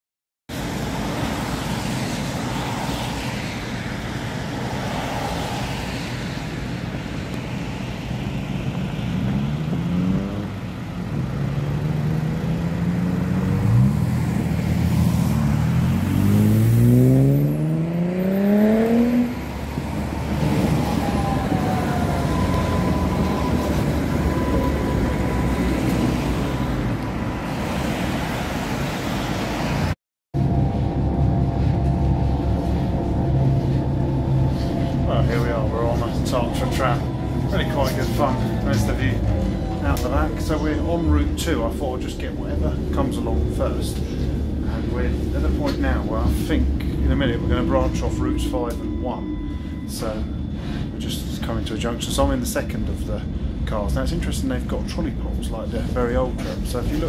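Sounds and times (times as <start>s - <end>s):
rumble of cars and trams: 0.5s - 57.0s
vehicle whines rising in pitch: 0.6s - 52.4s
thin high whine: 30.4s - 41.6s, 44.1s - 52.5s.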